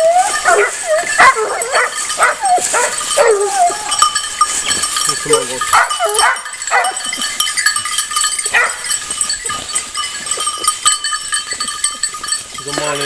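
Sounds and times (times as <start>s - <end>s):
hound crying: 0.0s - 4.3s, 5.3s - 7.2s
dog bells jingling: 0.0s - 13.0s.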